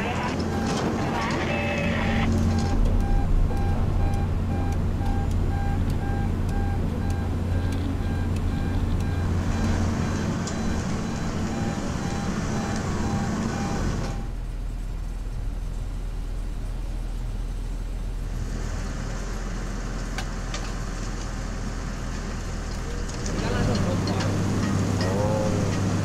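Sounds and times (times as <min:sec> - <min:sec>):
warning alarm beeping: 0:00.0 - 0:14.4
diesel engines humming: 0:00.0 - 0:26.0.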